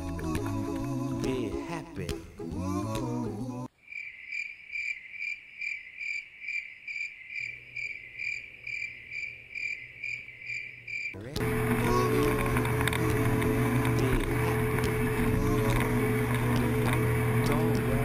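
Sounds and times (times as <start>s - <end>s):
background music: 0.0s - 3.7s
cricket chirping in pulses: 3.8s - 11.4s.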